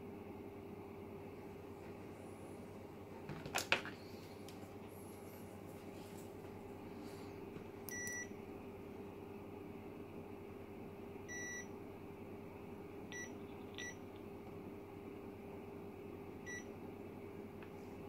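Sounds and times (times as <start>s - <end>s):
faint steady hum: 0.0s - 18.0s
continuity tester beeping: 11.3s - 11.7s, 13.1s - 14.0s, 16.5s - 16.7s.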